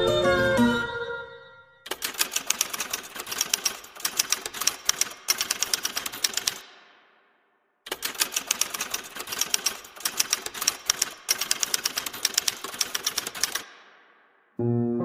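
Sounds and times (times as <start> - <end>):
typewriter keys striking: 1.9 - 6.6, 7.9 - 13.8.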